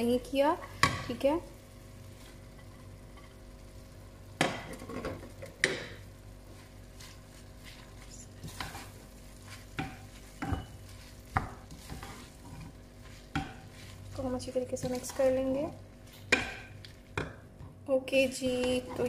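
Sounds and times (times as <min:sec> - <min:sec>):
food sizzling in pan: 0:00.0 - 0:17.5
spatula knocking against pan: 0:09.7 - 0:12.2, 0:13.3 - 0:13.7, 0:16.3 - 0:17.4.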